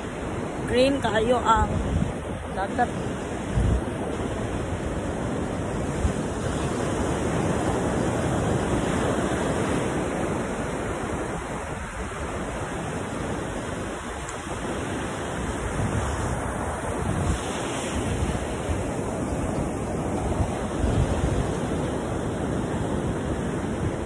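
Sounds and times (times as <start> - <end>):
ocean surf breaking on beach: 0.0 - 24.0.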